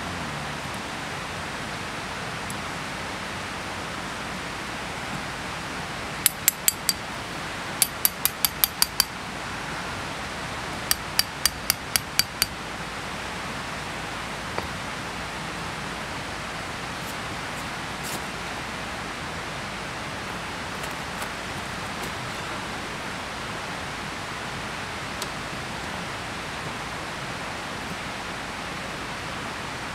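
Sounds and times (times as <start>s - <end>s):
hammer striking tent pegs: 6.2s - 7.0s, 7.8s - 9.1s, 10.9s - 12.5s.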